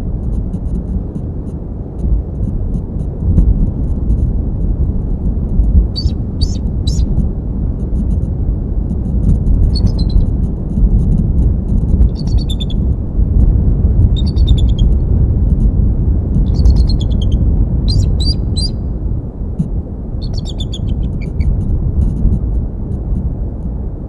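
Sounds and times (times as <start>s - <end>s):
loud low rumble: 0.0s - 24.0s
eagle chittering calls: 6.0s - 7.1s, 9.7s - 10.3s, 12.1s - 12.8s, 14.2s - 14.9s, 16.5s - 18.8s, 20.2s - 21.5s.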